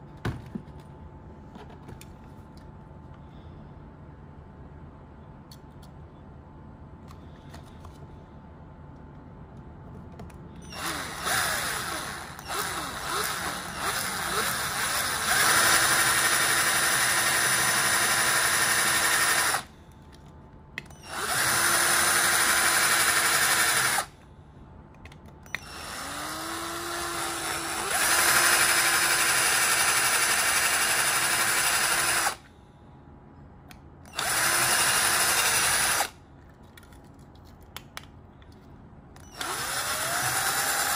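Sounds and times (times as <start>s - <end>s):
power drill drilling metal: 10.6s - 19.7s, 21.0s - 24.1s, 25.6s - 32.4s, 34.1s - 36.2s, 39.2s - 40.9s.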